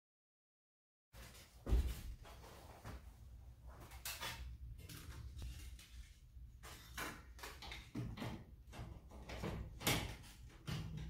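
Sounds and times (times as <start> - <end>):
metal tube knocking and rattling: 6.6 - 11.0.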